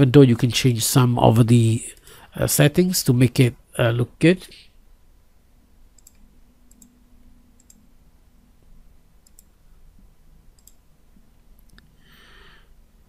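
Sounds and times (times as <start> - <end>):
faint low hum: 0.0 - 13.0
computer mouse clicks: 6.0 - 7.0, 7.6 - 7.8, 9.2 - 9.5, 10.6 - 10.8.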